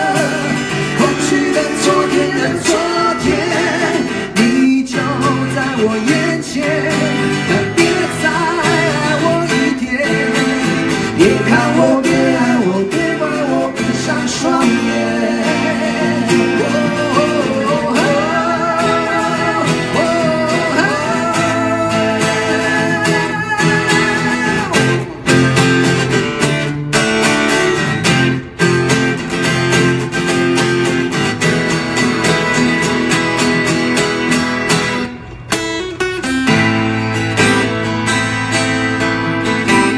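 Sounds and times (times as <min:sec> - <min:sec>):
man singing: 0:00.0 - 0:25.4
acoustic guitars strummed: 0:00.0 - 0:39.9.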